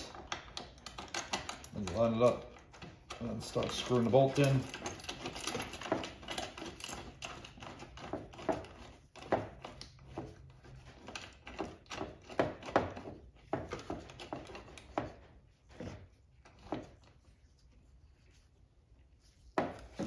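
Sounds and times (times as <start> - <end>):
belt hardware clicks and knocks: 0.0 - 15.2.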